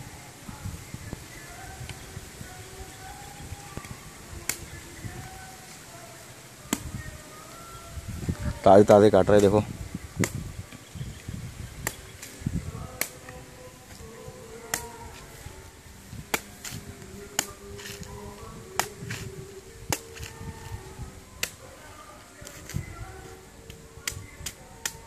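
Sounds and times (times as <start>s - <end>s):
machete chopping coconut husk: 11.8s - 12.4s, 13.0s - 13.3s, 14.7s - 15.0s, 16.2s - 18.1s, 18.8s - 19.3s, 19.9s - 20.4s, 21.4s - 21.6s.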